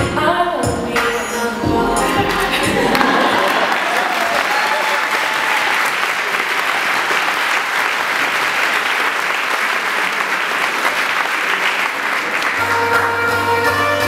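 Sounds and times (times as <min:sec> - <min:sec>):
music: 0:00.0 - 0:03.1, 0:12.6 - 0:14.0
audience applauding: 0:02.3 - 0:13.3.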